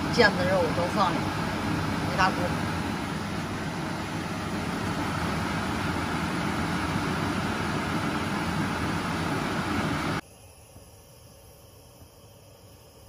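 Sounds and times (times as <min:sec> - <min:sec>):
liquid boiling hard in a pan: 0:00.0 - 0:10.2.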